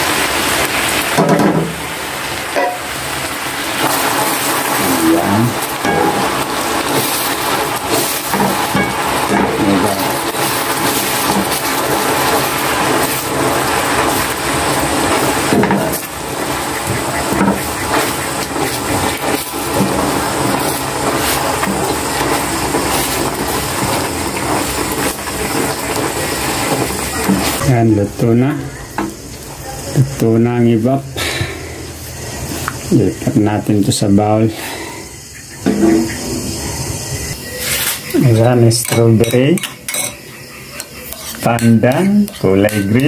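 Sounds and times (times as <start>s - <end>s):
sauce bubbling and sizzling in a pan: 0.0s - 34.0s, 34.6s - 43.0s
wooden spatula scraping a pan: 4.7s - 27.6s, 37.6s - 43.0s.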